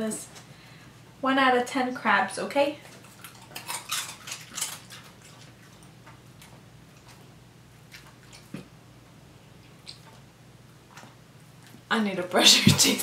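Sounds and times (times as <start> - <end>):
dog crunching chip: 2.9 - 8.7
chewing clicks: 3.0 - 7.3, 7.9 - 8.7, 9.6 - 10.3.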